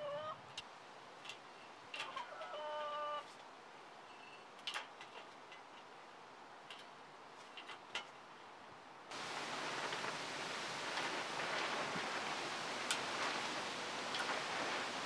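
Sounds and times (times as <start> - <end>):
steady hiss: 5.3 - 15.0.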